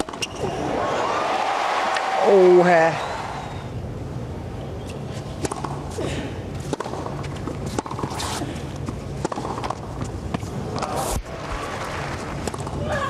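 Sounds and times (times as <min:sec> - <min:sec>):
racket striking tennis ball: 0:05.4 - 0:05.9, 0:06.6 - 0:11.2
tennis ball bouncing: 0:05.4 - 0:06.0, 0:06.6 - 0:11.0, 0:12.2 - 0:12.8.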